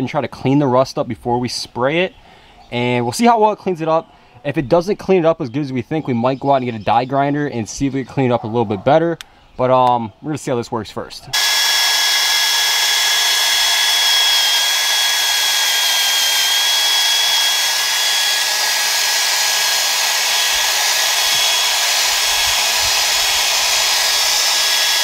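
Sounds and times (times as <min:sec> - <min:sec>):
drill wire brush scrubbing steel: 0:11.4 - 0:25.0.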